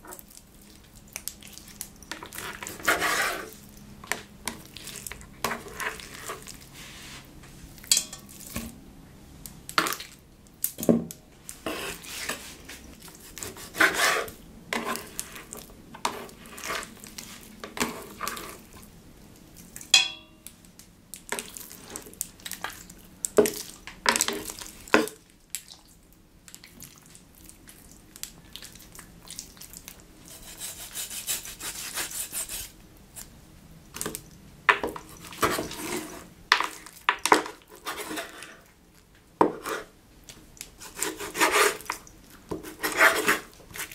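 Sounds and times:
steady scraping hiss: 2.3s - 3.7s, 4.6s - 8.6s, 11.4s - 18.8s
knife cutting meat on wooden board: 13.2s - 15.1s, 40.8s - 41.9s.

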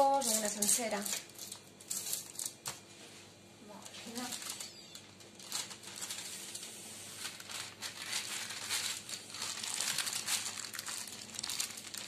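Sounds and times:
parchment paper crinkling: 3.8s - 12.0s.

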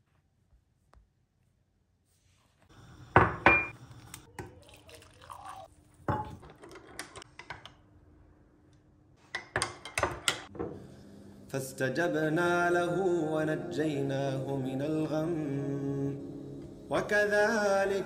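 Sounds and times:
water pouring into mug: 4.4s - 5.7s.

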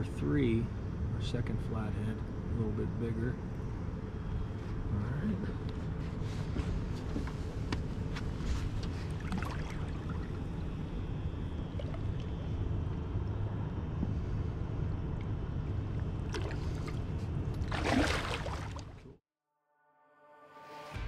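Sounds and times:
steady low rumble: 0.0s - 19.2s
water sloshing against a boat: 5.7s - 19.2s
fish splashing: 9.1s - 10.7s, 16.3s - 19.1s.

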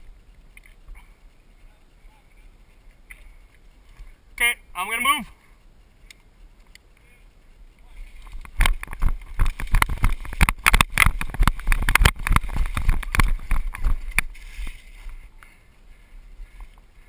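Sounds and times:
gear rattling: 8.0s - 15.3s
running footsteps on dry leaves: 8.8s - 16.6s.

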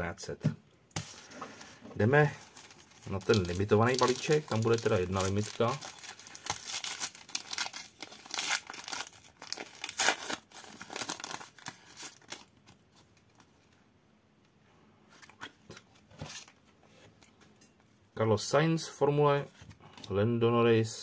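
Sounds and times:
wrapper rustling: 1.0s - 13.5s
card pack wrapper crinkling: 2.0s - 13.5s.

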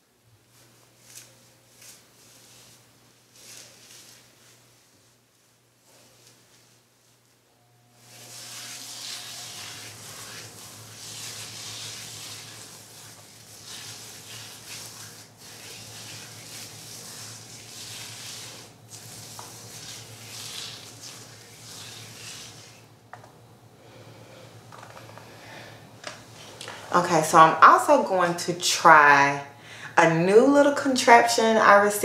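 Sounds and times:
wet hair crackling by hand: 0.5s - 7.4s, 8.1s - 23.0s.

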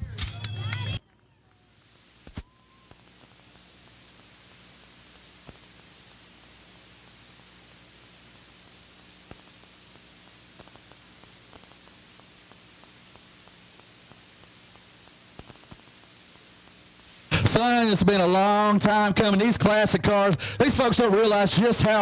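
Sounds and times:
electronic static hiss: 0.9s - 22.0s
faint clicks: 10.6s - 16.8s.

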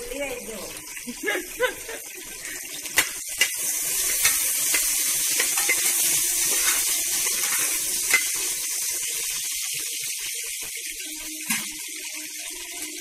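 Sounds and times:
onions sizzling in hot fat: 0.0s - 13.0s
metal spatula scraping pot: 3.0s - 8.6s.

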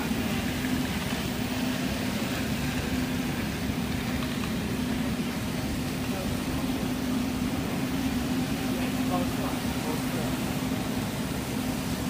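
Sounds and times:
factory hiss: 0.0s - 12.0s
machine hum: 0.0s - 12.0s.

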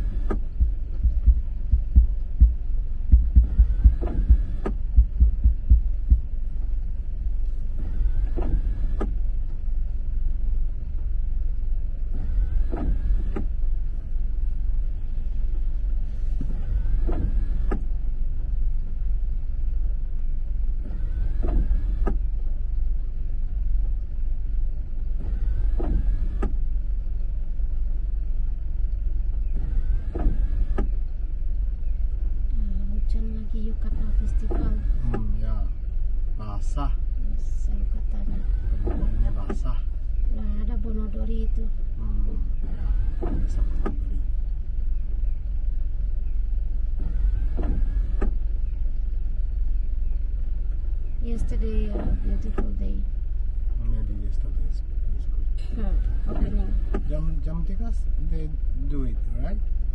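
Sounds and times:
windscreen wipers squeaking on glass: 0.0s - 2.0s, 3.4s - 4.9s, 7.8s - 9.2s, 12.1s - 13.5s, 16.3s - 17.8s, 20.8s - 22.3s, 25.2s - 26.6s, 29.4s - 31.0s, 38.2s - 39.8s, 42.6s - 44.2s, 47.0s - 48.5s, 51.4s - 52.8s, 55.9s - 57.2s
low rumble in car cabin: 0.0s - 59.9s.

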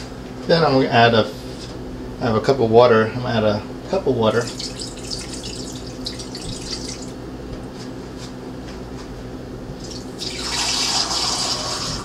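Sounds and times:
faucet running into steel sink: 4.3s - 7.2s, 9.8s - 12.0s
water poured into metal pot: 4.4s - 7.2s, 9.8s - 12.0s.

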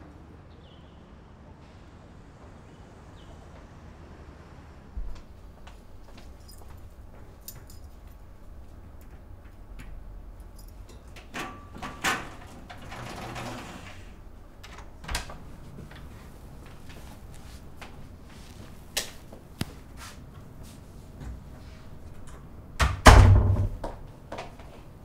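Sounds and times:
metal gate rattling: 7.4s - 15.0s.

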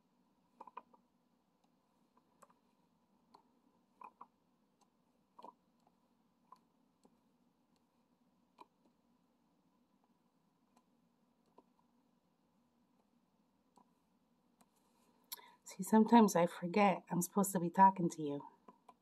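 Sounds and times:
quiet room hum: 0.0s - 19.0s
small plastic clicks and taps: 0.6s - 1.0s.

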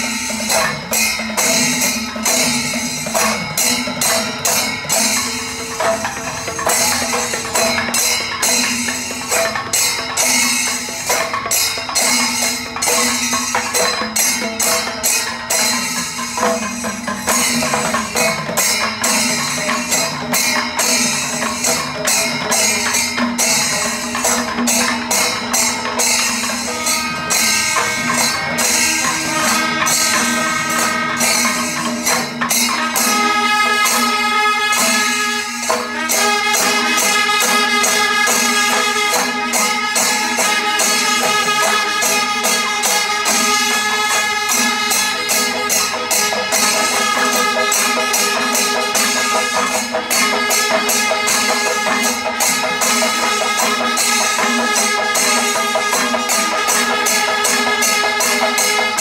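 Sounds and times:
cymbals: 0.0s - 59.0s
drums beating fast rhythm: 0.0s - 59.0s
brass horns holding notes: 26.6s - 59.0s.

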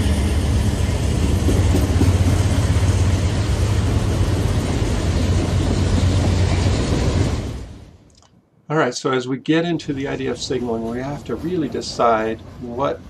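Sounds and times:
freight train passing: 0.0s - 8.0s, 8.8s - 13.0s.

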